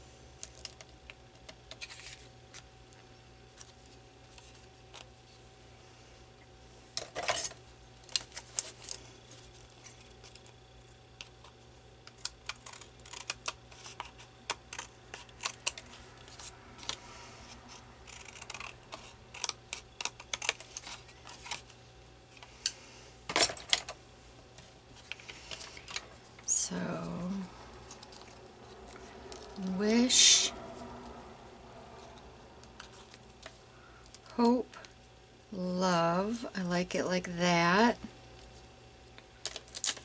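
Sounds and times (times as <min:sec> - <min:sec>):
scissors snipping paper: 0:12.1 - 0:17.0, 0:17.7 - 0:21.6.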